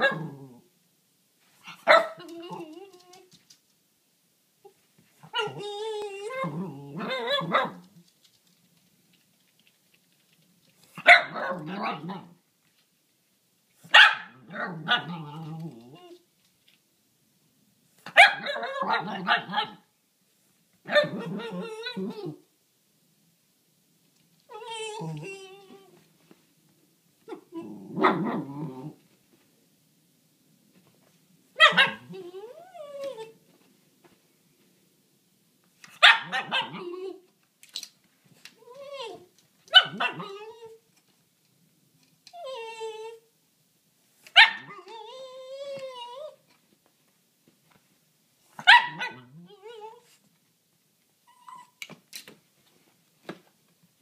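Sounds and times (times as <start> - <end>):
dog barking: 0.0 - 0.3, 1.7 - 2.2, 7.1 - 7.8, 11.0 - 12.2, 13.9 - 15.1, 18.1 - 19.9, 20.9 - 21.4, 31.6 - 32.1, 36.0 - 36.9, 39.7 - 40.4, 44.4 - 44.8, 48.6 - 49.3
dog whining and howling: 1.9 - 3.3, 5.2 - 7.8, 20.9 - 22.4, 24.5 - 26.0, 31.6 - 33.4, 36.2 - 37.3, 38.6 - 40.9, 42.3 - 43.3, 44.4 - 46.4, 48.6 - 50.2.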